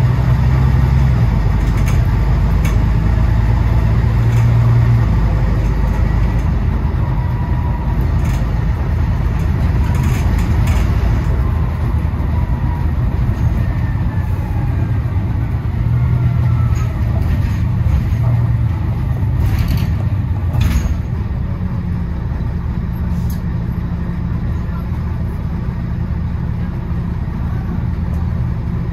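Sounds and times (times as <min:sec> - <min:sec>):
bus engine humming: 0:00.0 - 0:28.9.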